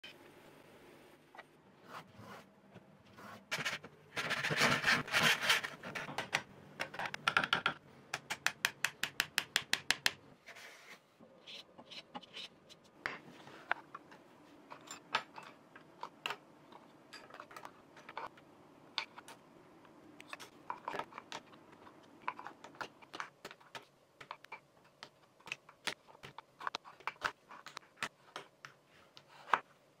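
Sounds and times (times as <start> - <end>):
tool scraping wood: 3.2 - 6.1.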